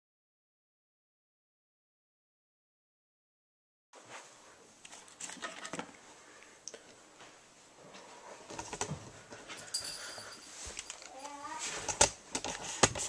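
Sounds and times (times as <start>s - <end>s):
faint room noise: 4.0s - 13.0s.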